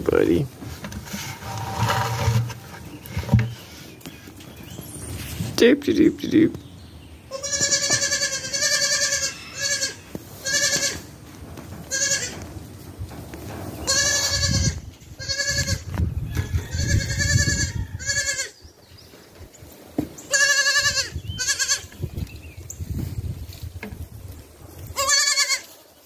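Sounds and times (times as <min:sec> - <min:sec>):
goat kid bleating: 0:07.3 - 0:11.1, 0:11.9 - 0:12.4, 0:13.8 - 0:15.9, 0:16.7 - 0:18.6, 0:20.3 - 0:21.9, 0:24.9 - 0:25.8.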